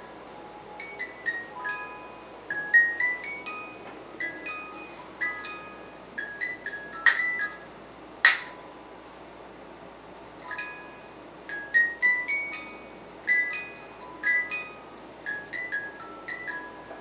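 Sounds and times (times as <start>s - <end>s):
music box playing a tune: 0.0s - 8.7s, 10.4s - 17.0s.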